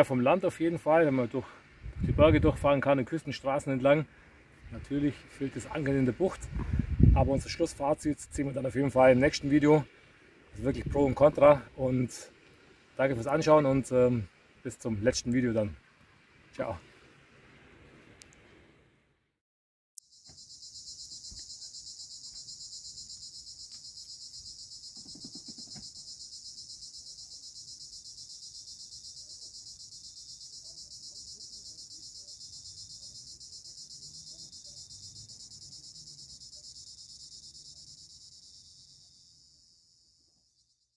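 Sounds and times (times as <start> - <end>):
insects chirring: 20.0 - 40.9.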